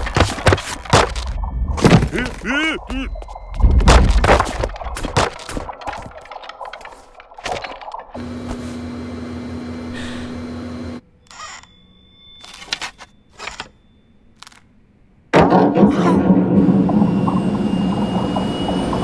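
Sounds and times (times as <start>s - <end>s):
mechanical hum: 8.2s - 12.4s.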